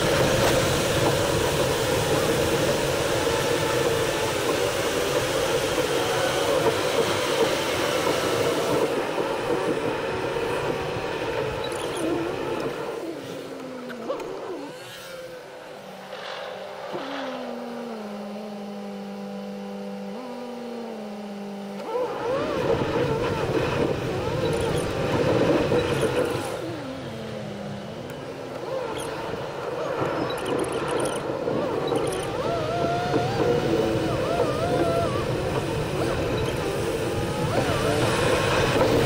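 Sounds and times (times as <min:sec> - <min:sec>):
car engine hum: 0:00.0 - 0:39.0
road noise: 0:00.0 - 0:39.0.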